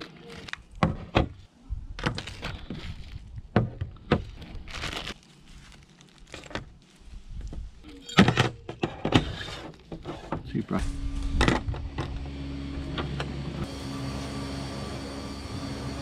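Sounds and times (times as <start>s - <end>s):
plastic bags crinkling: 4.2s - 6.9s.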